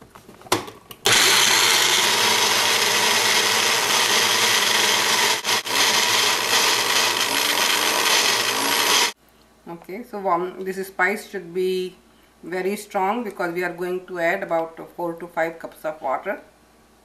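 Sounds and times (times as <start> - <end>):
blender grinding: 1.0 - 9.2.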